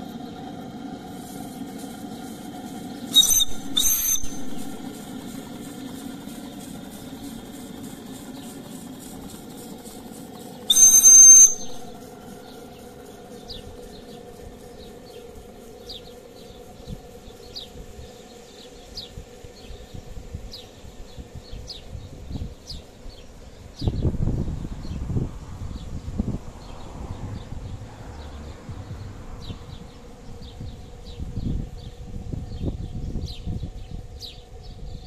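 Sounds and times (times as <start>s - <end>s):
steam engine ticking: 0.0s - 18.5s
high steam whistle toot: 2.7s - 7.6s, 10.6s - 12.6s.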